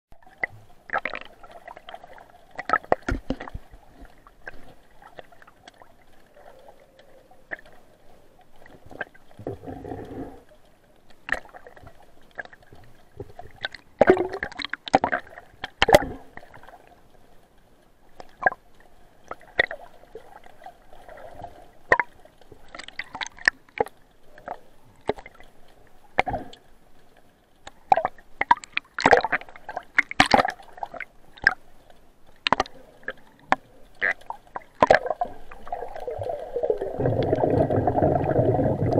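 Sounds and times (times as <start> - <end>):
muffled underwater gurgling: 9.0 - 10.4, 32.6 - 38.9.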